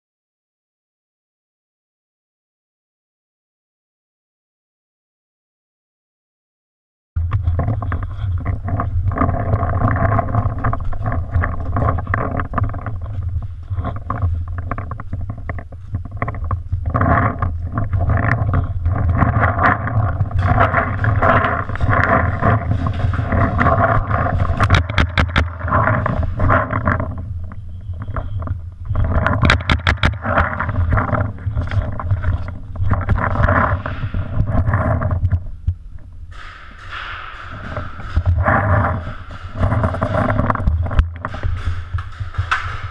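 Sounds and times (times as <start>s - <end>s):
camera handling rumble: 7.2s - 36.9s.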